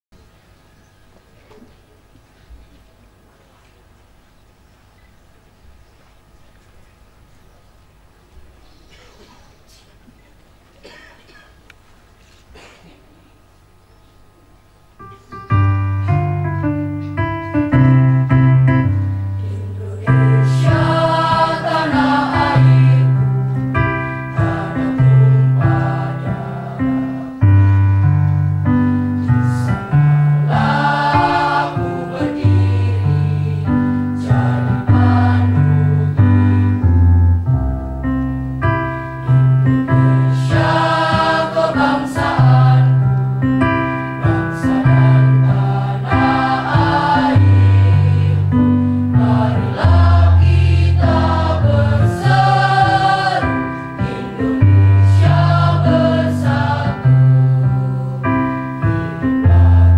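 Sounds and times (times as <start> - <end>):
keyboard low chords: 14.9 - 59.9
girls' choir singing: 20.2 - 23.3, 24.1 - 27.5, 29.5 - 36.7, 40.1 - 43.1, 44.2 - 58.4.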